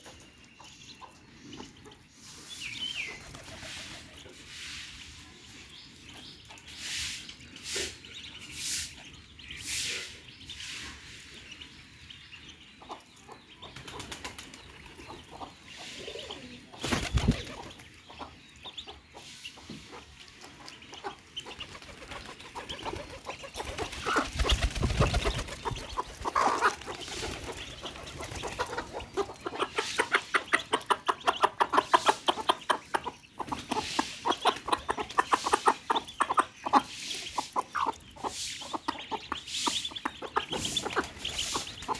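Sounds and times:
hen clucking: 7.6s - 41.9s.

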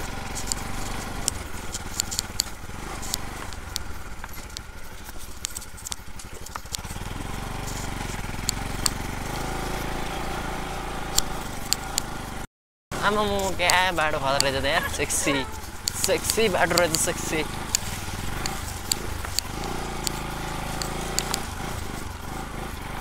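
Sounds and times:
stones clicking and rattling: 0.0s - 7.0s, 15.5s - 22.1s
motorcycle engine running: 0.0s - 23.0s.

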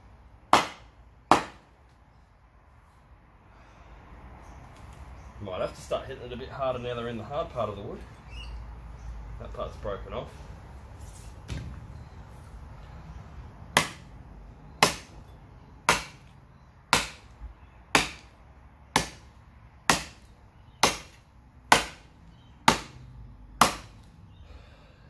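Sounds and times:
blade chopping wood: 0.5s - 1.6s, 13.8s - 14.1s, 14.8s - 15.2s, 15.9s - 16.3s, 16.9s - 17.3s, 17.9s - 18.3s, 18.9s - 19.3s, 19.9s - 23.0s, 23.6s - 24.1s.

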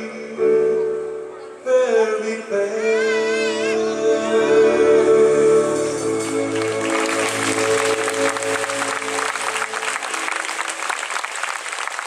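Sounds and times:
orchestra chord: 4.1s - 11.2s
audience applause: 6.1s - 12.0s.

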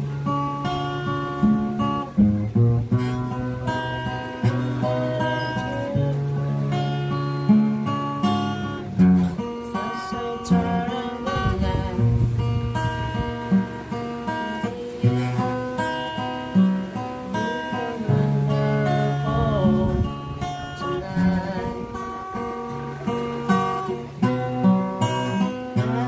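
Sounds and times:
acoustic guitar strummed: 0.0s - 26.0s
man singing: 3.3s - 7.5s, 9.4s - 12.3s, 17.3s - 23.2s, 25.4s - 26.0s.

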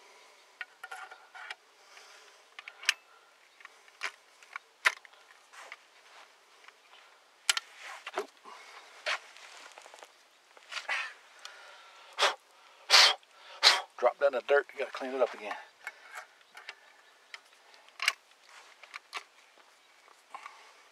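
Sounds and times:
shotgun metal clicks and knocks: 3.6s - 5.2s, 15.0s - 19.4s.

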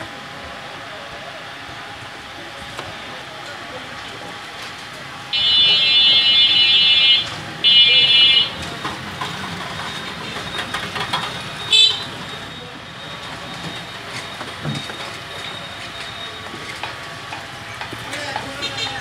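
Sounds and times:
vehicle horn honking: 5.3s - 8.6s, 11.7s - 12.2s, 18.6s - 19.0s.

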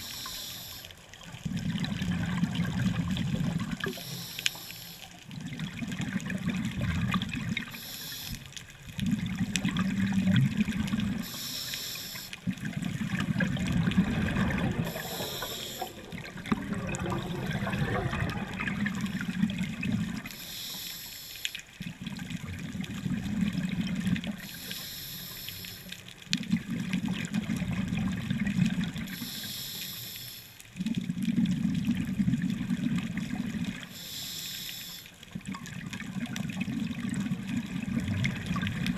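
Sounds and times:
regulator inhalation hiss: 0.0s - 0.9s, 3.9s - 5.1s, 7.7s - 8.5s, 11.2s - 12.4s, 14.9s - 16.0s, 20.3s - 21.6s, 24.4s - 25.9s, 29.1s - 30.6s, 33.9s - 35.2s
exhaled bubbles rumbling: 1.2s - 4.0s, 5.2s - 7.8s, 8.7s - 11.3s, 12.4s - 20.4s, 21.8s - 24.5s, 26.2s - 29.2s, 30.8s - 33.9s, 35.2s - 38.9s.

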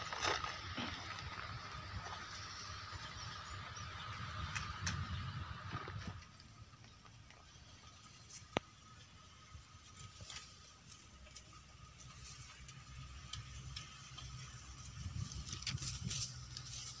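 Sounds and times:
low rumbling: 0.0s - 11.2s
light rustling and ticking: 9.8s - 17.0s.

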